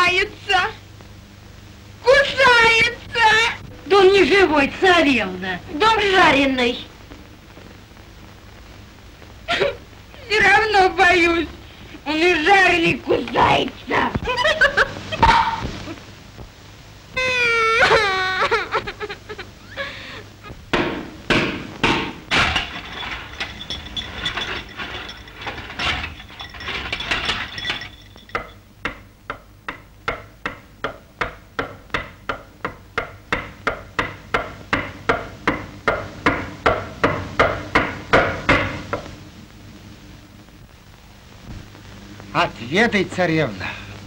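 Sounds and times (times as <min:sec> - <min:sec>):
steady sharp knocks: 0:20.7 - 0:22.7, 0:28.3 - 0:39.0
irregular knocks and clatter: 0:20.7 - 0:39.1.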